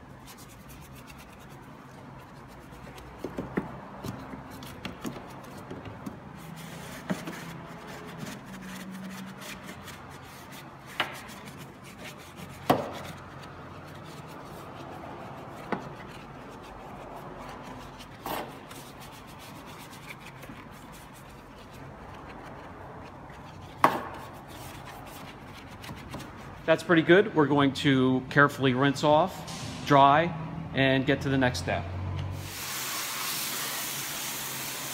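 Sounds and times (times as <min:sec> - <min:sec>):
brush scrubbing engine parts: 0:00.0 - 0:27.2.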